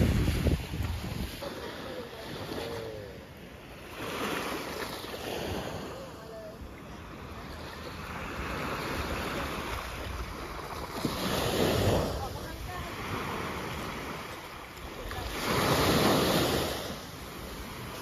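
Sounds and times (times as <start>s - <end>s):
small waves lapping on shore: 0.0s - 18.0s.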